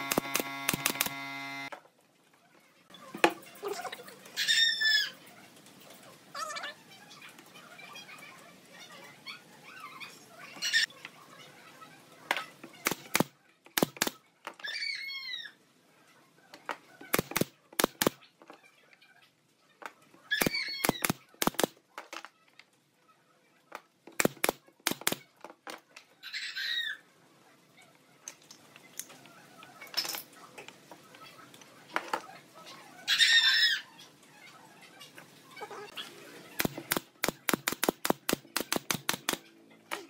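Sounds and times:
nail gun firing: 0:00.0 - 0:01.7, 0:12.8 - 0:14.2, 0:17.1 - 0:18.2, 0:20.4 - 0:21.7, 0:24.2 - 0:25.2, 0:36.6 - 0:39.4.

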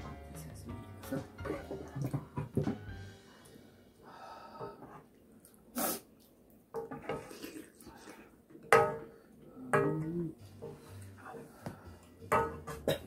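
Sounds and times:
slurping noodles and soup: 0:07.2 - 0:08.2.

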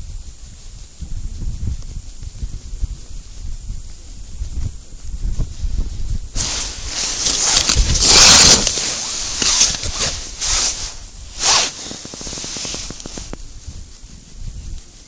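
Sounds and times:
clothing rustling: 0:06.4 - 0:13.4.

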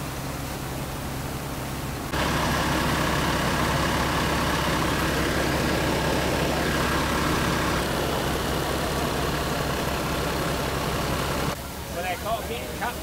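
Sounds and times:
threshing machine humming: 0:02.1 - 0:11.6.

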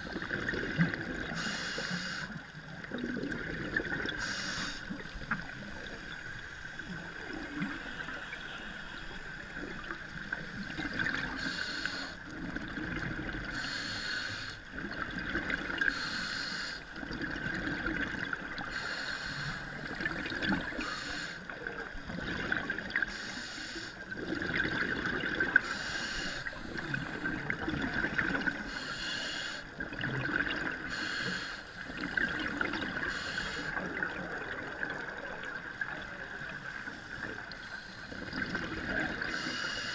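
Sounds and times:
scuba regulator breathing underwater: 0:01.2 - 0:02.4, 0:04.1 - 0:05.0, 0:10.5 - 0:12.2, 0:13.5 - 0:14.6, 0:15.9 - 0:16.8, 0:18.7 - 0:19.9, 0:20.6 - 0:21.5, 0:23.0 - 0:24.0, 0:25.5 - 0:27.4, 0:28.5 - 0:29.7, 0:30.8 - 0:31.8, 0:32.9 - 0:33.9, 0:37.5 - 0:39.9.

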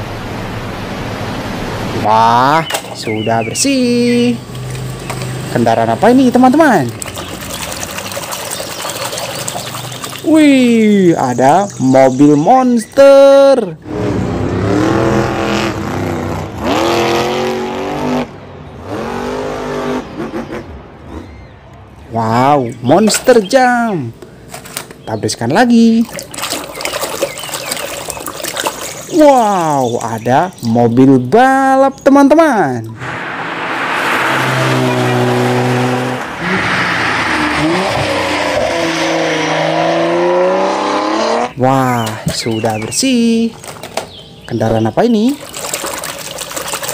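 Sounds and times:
truck engine revving hard: 0:13.8 - 0:21.2, 0:33.0 - 0:41.6.

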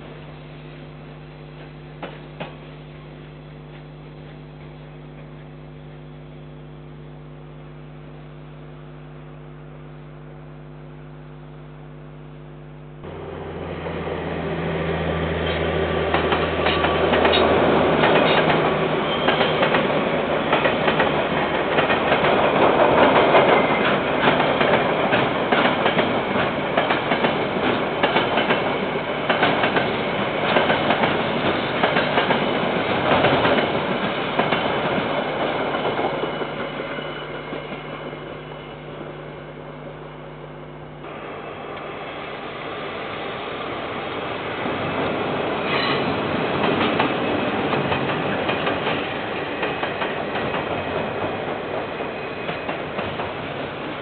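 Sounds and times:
freight train engine drone: 0:00.0 - 0:54.0
train wheels clattering over rails: 0:15.4 - 0:36.9, 0:44.6 - 0:54.0.

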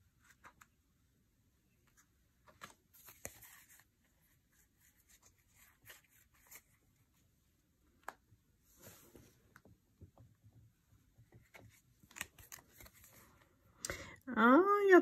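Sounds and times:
handling rustling and light clicks: 0:11.2 - 0:13.5.

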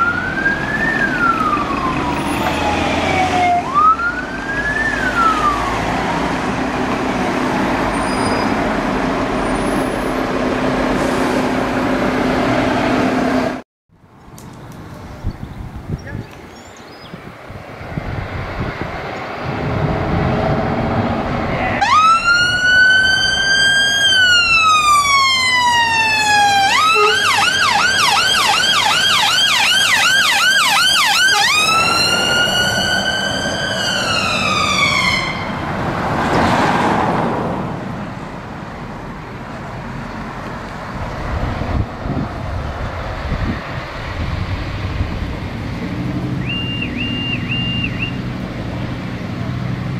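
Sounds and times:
fire engine siren: 0:00.0 - 0:07.3, 0:21.7 - 0:36.1, 0:46.3 - 0:48.3
truck diesel engine: 0:00.0 - 0:13.6, 0:17.5 - 0:49.9.

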